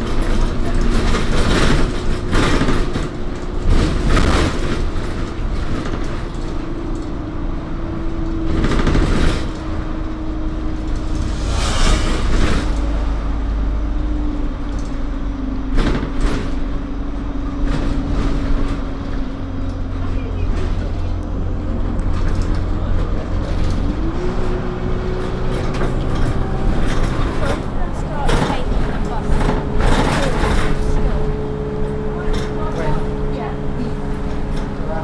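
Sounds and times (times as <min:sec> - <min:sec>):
bus engine and road rumble: 0:00.0 - 0:35.0
brief rushing sounds: 0:10.8 - 0:13.7.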